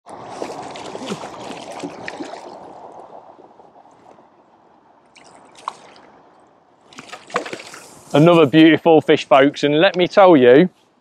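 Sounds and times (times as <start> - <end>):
fish splashing in water: 0.2 - 3.0, 5.1 - 6.1, 6.9 - 8.0.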